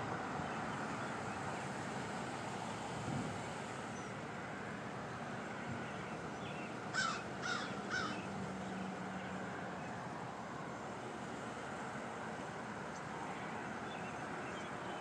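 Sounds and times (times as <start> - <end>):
steady background hum: 0.0 - 15.0
bird cawing: 6.9 - 8.3.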